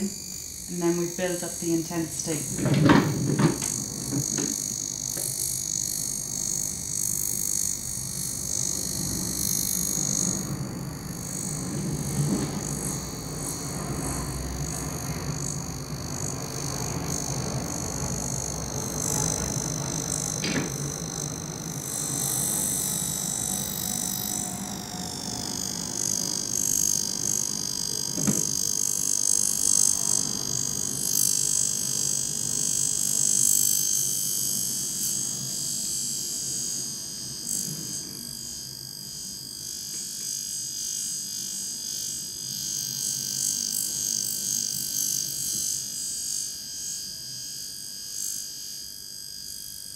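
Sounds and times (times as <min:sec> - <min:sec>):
high-pitched electrical buzz: 0:00.0 - 0:49.9
brief knocks: 0:28.2 - 0:28.5.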